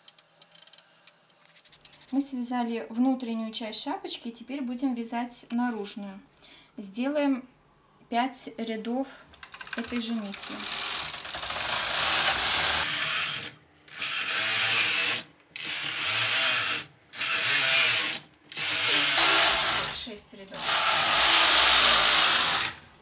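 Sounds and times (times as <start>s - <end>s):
knitting machine carriage rasping: 9.6s - 20.0s.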